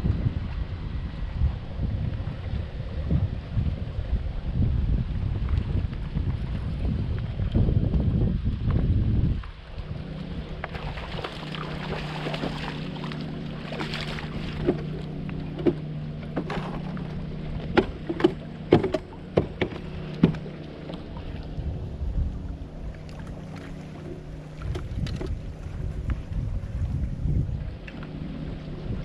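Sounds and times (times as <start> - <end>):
steady low hum: 0.0 - 29.0
water washing along hull: 0.0 - 29.0
sharp knocks and clicks: 17.7 - 20.5.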